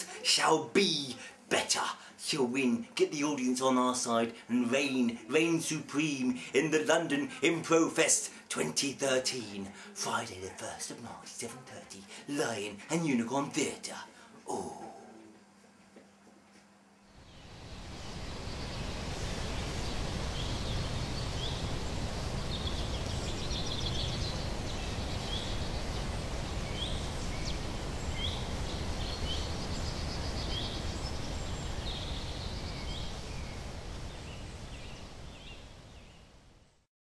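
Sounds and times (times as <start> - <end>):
bird chirps and trills: 17.3 - 36.2.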